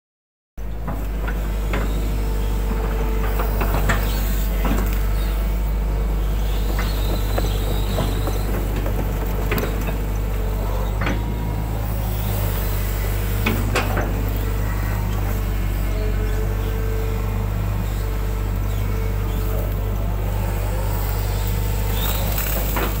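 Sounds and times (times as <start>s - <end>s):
excavator diesel engine running: 0.6s - 23.0s
hydraulic whine: 0.6s - 23.0s
knocks and clanks: 6.6s - 11.4s.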